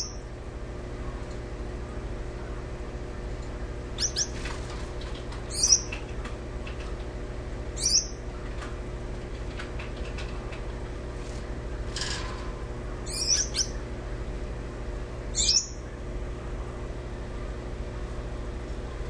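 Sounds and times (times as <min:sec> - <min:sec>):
steady low hum: 0:00.0 - 0:19.0
finches giving short high calls: 0:04.0 - 0:04.4, 0:05.5 - 0:06.0, 0:07.8 - 0:08.2, 0:13.1 - 0:13.8, 0:15.4 - 0:15.8.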